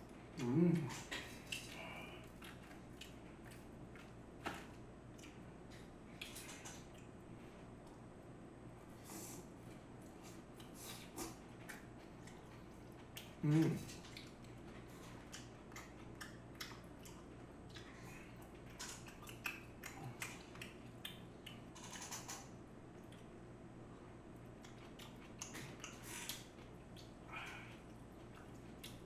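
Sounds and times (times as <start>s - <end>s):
chewing mouth noises: 0.4s - 4.2s, 5.1s - 7.1s, 10.0s - 23.3s, 24.4s - 29.0s.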